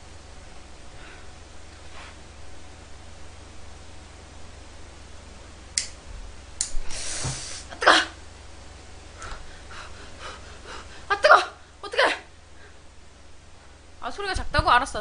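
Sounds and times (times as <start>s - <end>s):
gas hiss: 6.8s - 7.7s.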